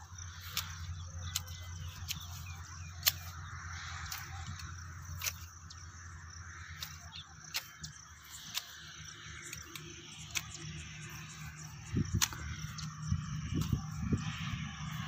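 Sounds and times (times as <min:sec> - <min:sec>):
steady low hum: 0:00.0 - 0:15.0
sharp clicks: 0:00.3 - 0:14.6.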